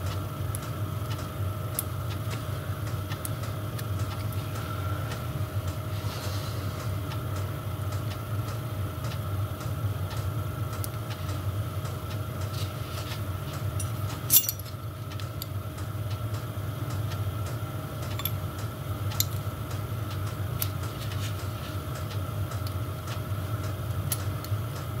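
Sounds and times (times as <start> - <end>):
space heater humming: 0.0 - 25.0
metal parts clinking: 13.8 - 14.7, 18.2 - 18.4.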